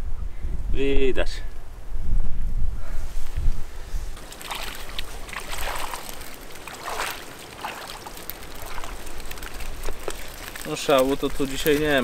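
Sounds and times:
water splashing and sloshing: 4.2s - 11.2s.

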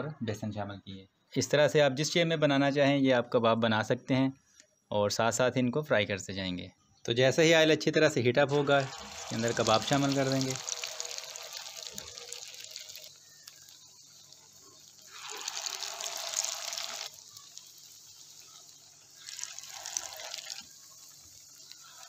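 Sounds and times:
patties sizzling in hot oil: 8.5s - 22.0s.

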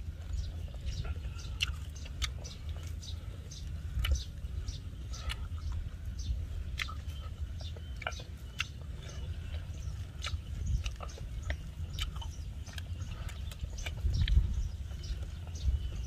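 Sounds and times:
chewing and mouth smacks: 0.0s - 16.0s
low rumble: 0.0s - 16.0s
small irregular clicks: 1.4s - 4.4s.

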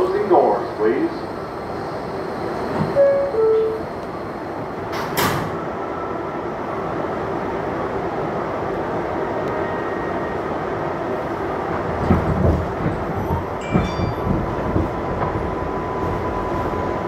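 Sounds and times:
train car rumbling: 0.0s - 17.0s
train doors banging shut: 2.6s - 3.9s, 4.8s - 5.7s, 12.0s - 15.6s
wheels knocking on rail joints: 11.8s - 16.3s.

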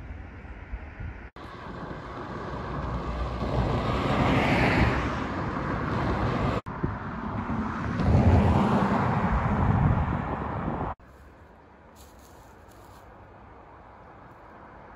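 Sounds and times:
car passing on road: 0.0s - 11.0s.

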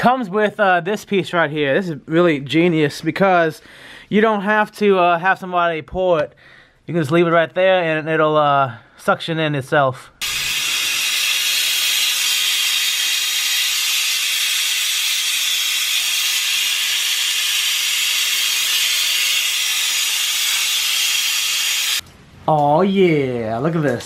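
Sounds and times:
vacuum bleeder hissing: 10.2s - 22.0s.

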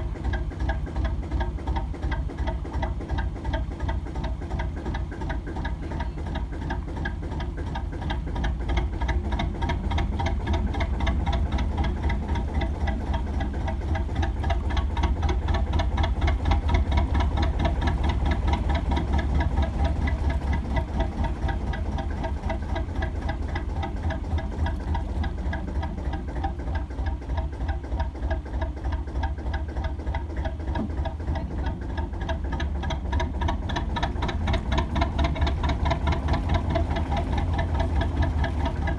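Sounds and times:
diesel engine idling with knocking beat: 0.0s - 38.9s.

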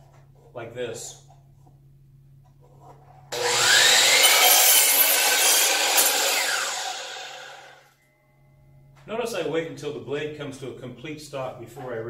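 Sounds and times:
miter saw cutting wood: 3.3s - 7.8s.

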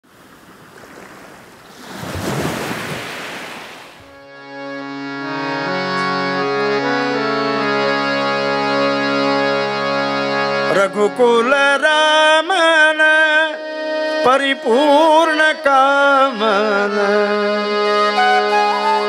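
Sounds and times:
harmonium playing chords: 4.0s - 19.0s.

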